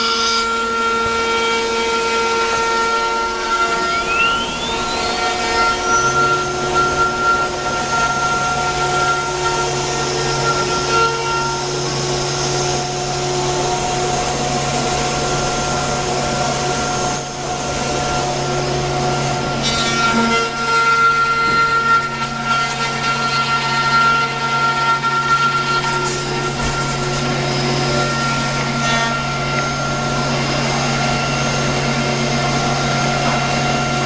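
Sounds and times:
router spindle whine: 0:00.0 - 0:34.0
low hum: 0:03.1 - 0:10.7.

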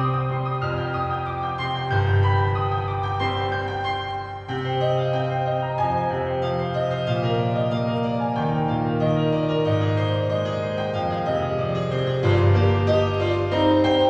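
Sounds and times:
keyboard sustained chords: 0:00.0 - 0:14.0.

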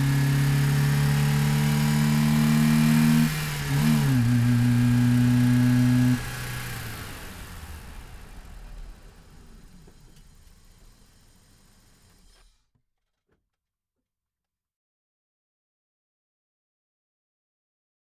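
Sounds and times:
car engine droning: 0:00.0 - 0:12.6.

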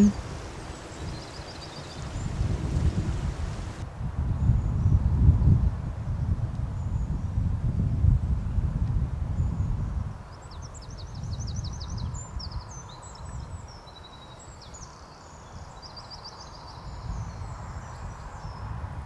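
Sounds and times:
songbirds chirping and trilling: 0:00.0 - 0:03.8, 0:09.4 - 0:18.8
wind rumble on microphone: 0:00.0 - 0:19.0.

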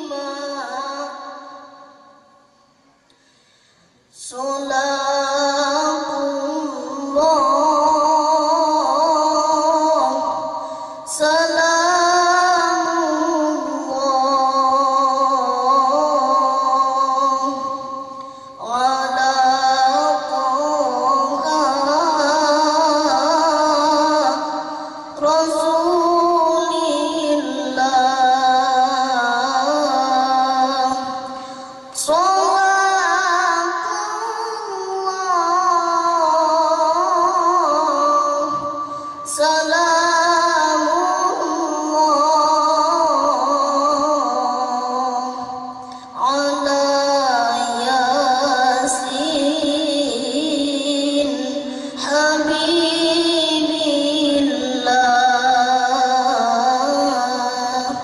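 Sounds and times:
boy reciting melodically into microphone: 0:00.0 - 0:58.0.

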